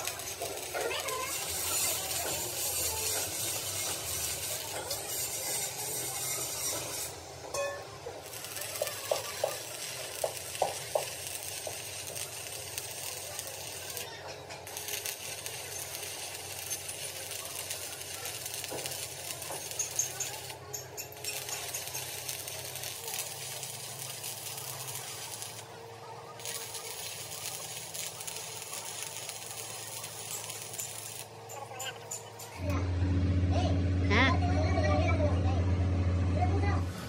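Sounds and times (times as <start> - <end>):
steady hissing crackle: 0.0 - 32.6
light metallic clinks: 29.4 - 32.7.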